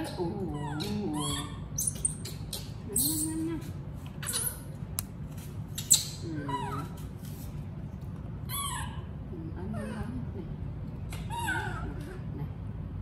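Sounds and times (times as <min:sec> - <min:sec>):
baby monkeys squealing: 0:00.4 - 0:03.4, 0:04.2 - 0:04.7, 0:08.5 - 0:09.1, 0:11.2 - 0:11.9.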